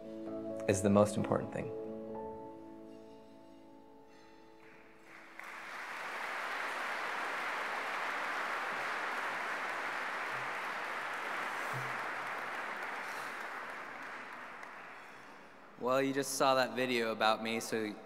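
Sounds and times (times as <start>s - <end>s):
soft instrumental music: 0.0s - 5.4s
audience applauding: 4.6s - 15.8s.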